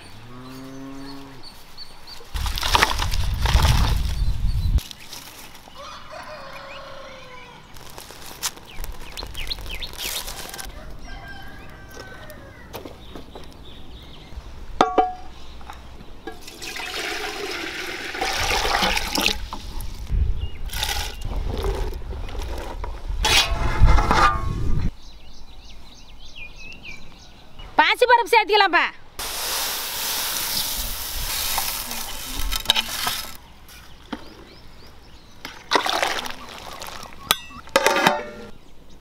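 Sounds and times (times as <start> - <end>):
rooster crowing: 5.8 - 7.6, 10.6 - 12.8.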